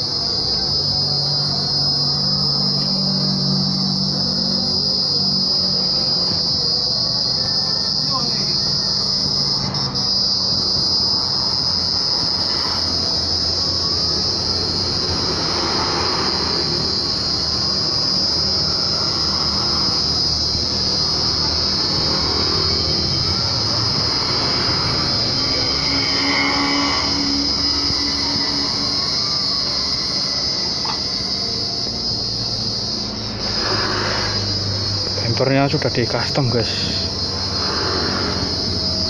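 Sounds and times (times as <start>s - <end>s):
insect chorus shrilling: 0.0s - 39.0s
low hum: 9.4s - 35.2s.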